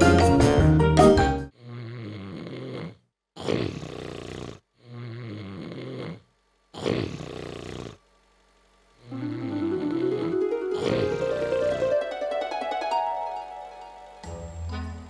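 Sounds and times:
cartoon snoring: 1.5s - 8.0s, 9.0s - 11.9s.

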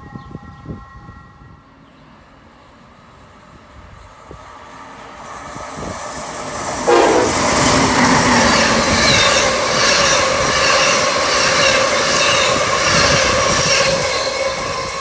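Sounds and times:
electric locomotive whine: 0.0s - 15.0s
train wheels clattering on rails: 6.5s - 15.0s
high wheel squealing: 6.9s - 14.6s.

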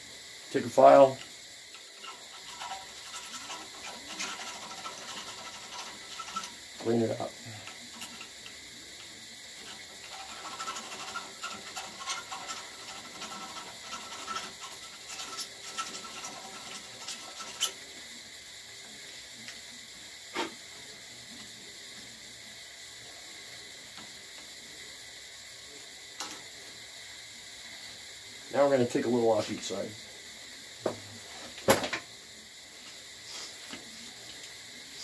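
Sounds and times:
hand file scraping metal: 2.0s - 8.4s, 9.6s - 17.8s.

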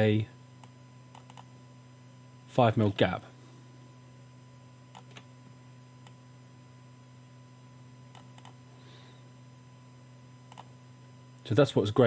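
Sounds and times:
low electrical hum: 0.0s - 12.0s
keyboard and mouse clicks: 1.1s - 1.5s, 8.1s - 8.6s, 10.5s - 10.7s.

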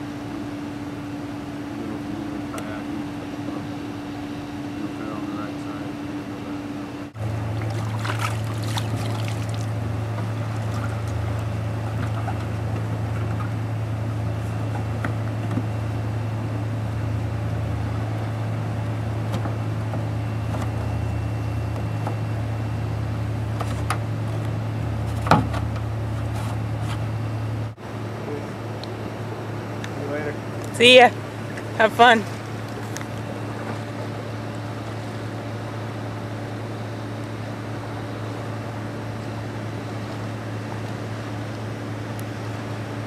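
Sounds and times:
low mechanical hum: 0.0s - 43.0s
water trickling and lapping: 7.3s - 15.1s.

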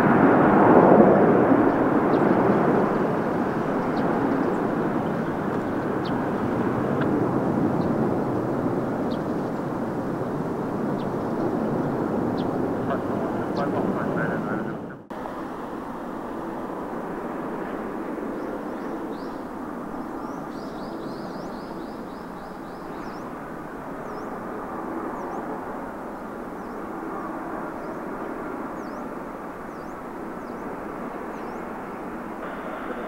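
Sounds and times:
distant jet engines roaring: 0.0s - 33.0s
small birds chirping: 1.6s - 7.1s, 9.0s - 14.7s, 18.3s - 31.9s.

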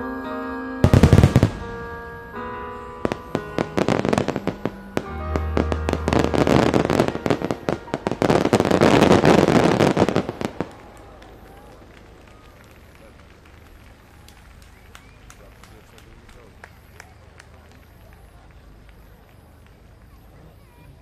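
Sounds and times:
music with sustained notes: 0.0s - 12.0s
fireworks bursting and crackling: 0.8s - 18.3s.

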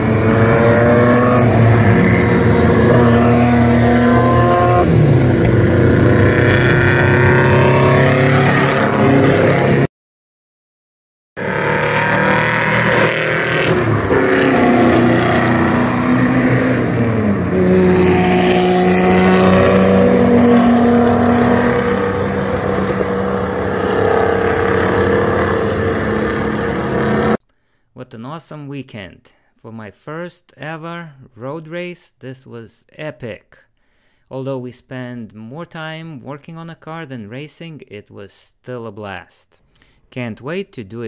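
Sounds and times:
race car engines: 0.0s - 9.9s, 11.4s - 27.4s.

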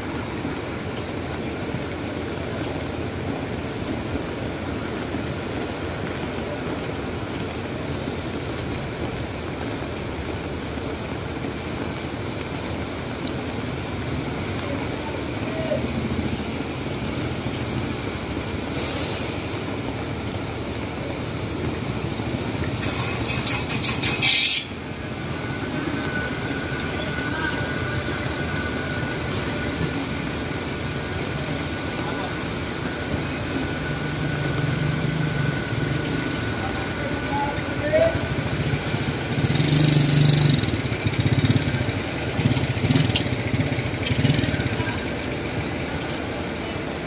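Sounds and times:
rain on a wet street: 0.0s - 47.0s
traffic on wet road: 0.0s - 47.0s
loud hiss: 18.6s - 19.8s.

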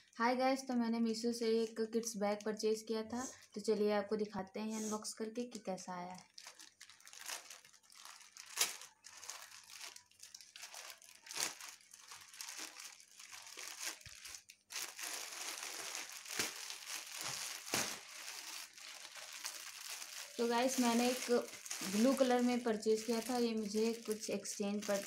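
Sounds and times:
plastic tearing: 6.2s - 25.0s
plastic mailer crinkling: 6.3s - 25.0s.

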